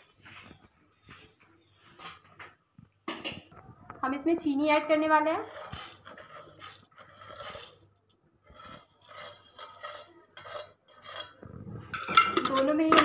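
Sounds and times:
spoon clinking against bowls: 8.8 - 13.0.

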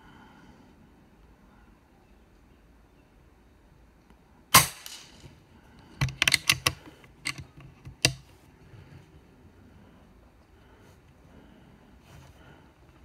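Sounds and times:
air rifle shot: 4.5 - 5.2.

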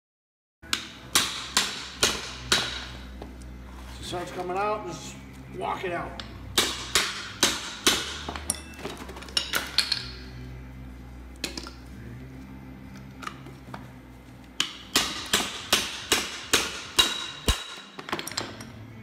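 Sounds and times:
hammer striking metal: 0.7 - 3.0, 6.2 - 8.7, 14.6 - 18.7.

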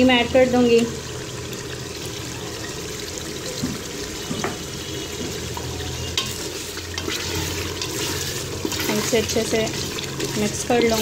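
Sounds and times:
curry sizzling: 0.0 - 11.0
spoon stirring thick curry: 5.3 - 11.0
spoon tapping metal pot: 5.3 - 11.0.

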